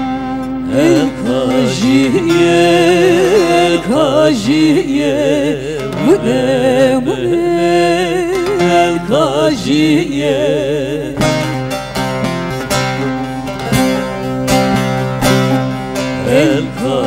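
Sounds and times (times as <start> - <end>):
plucked lutes: 0.0 - 17.0
woman singing with vibrato: 0.6 - 11.2, 16.2 - 17.0.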